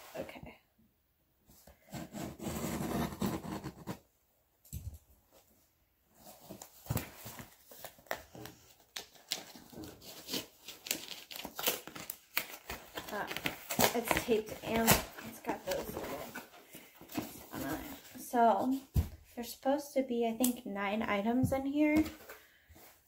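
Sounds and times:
packing tape and cardboard tearing: 1.8 - 4.0, 6.4 - 18.2.

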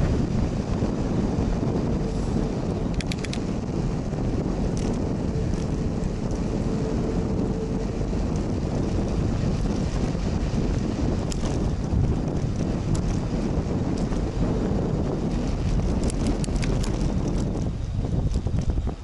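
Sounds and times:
road rumble: 0.0 - 19.0
wind buffeting microphone: 0.0 - 19.0
light clicks: 2.9 - 3.4.

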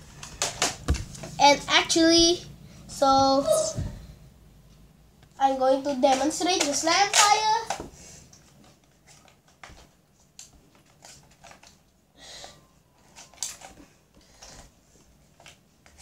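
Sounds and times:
faint clicks and rustles of handling: 6.0 - 16.0.

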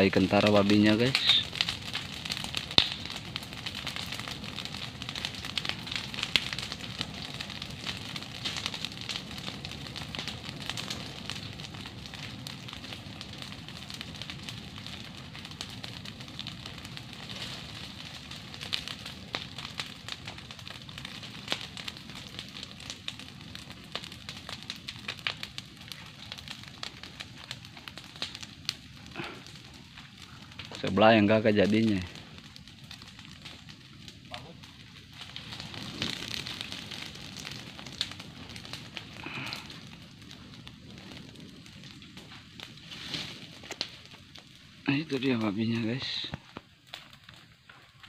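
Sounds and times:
fire crackling and popping: 0.0 - 48.0.

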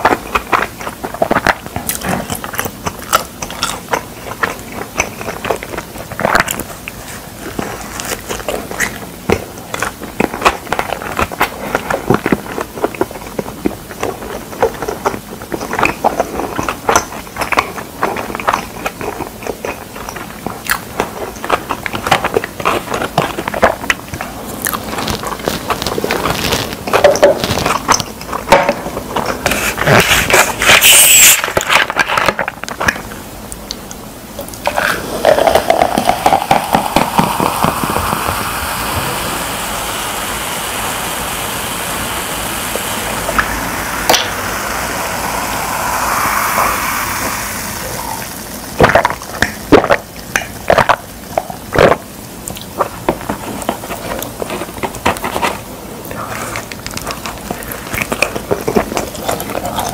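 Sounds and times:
chewing and crunching pizza: 0.0 - 38.7, 48.8 - 59.9
plastic bottle opening hiss: 29.2 - 33.1, 34.6 - 51.0
drink fizzing: 34.4 - 59.9.

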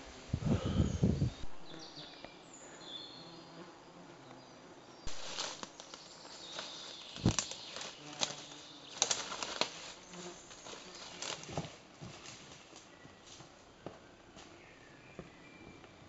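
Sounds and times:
leaves rustling underfoot: 5.0 - 14.9
twigs snapping underfoot: 5.1 - 13.5
footsteps on stones: 5.1 - 14.5.

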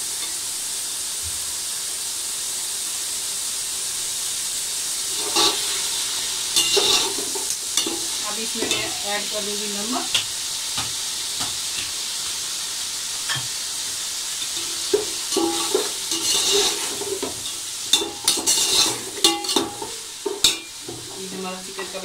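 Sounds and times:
chicken sizzling in hot oil: 0.0 - 22.0
metal spatula scraping a pot: 5.1 - 5.9, 6.6 - 9.4, 14.4 - 22.0.

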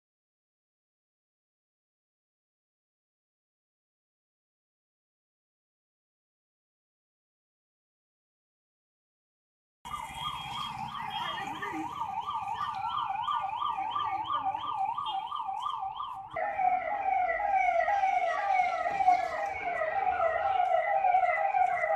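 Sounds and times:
fire engine siren: 9.9 - 21.9.

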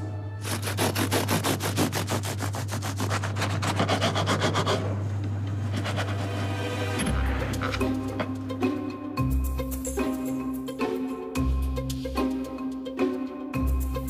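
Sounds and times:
knife sawing through crusty bread: 0.4 - 5.0, 5.7 - 6.5.

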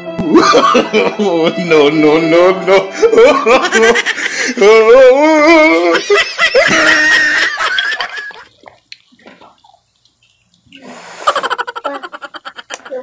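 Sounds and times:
laughter: 0.2 - 1.6, 2.7 - 4.5, 5.6 - 8.5, 11.3 - 13.0.

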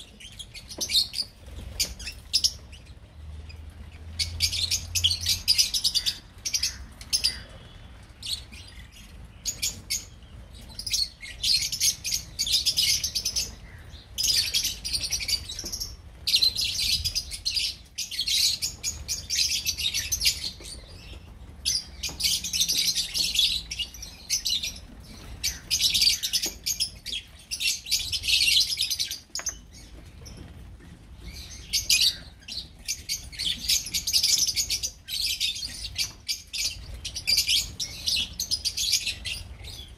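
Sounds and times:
lovebirds chattering: 0.0 - 39.9.

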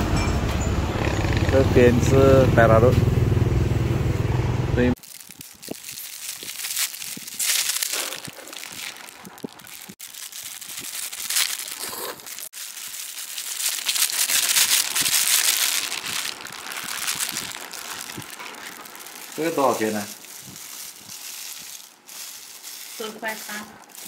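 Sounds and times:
plastic bag crinkling: 5.0 - 24.0.

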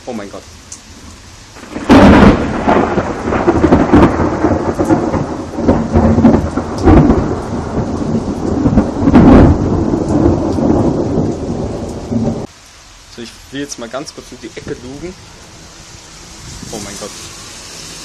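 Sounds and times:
thunder rumbling: 0.8 - 12.5.

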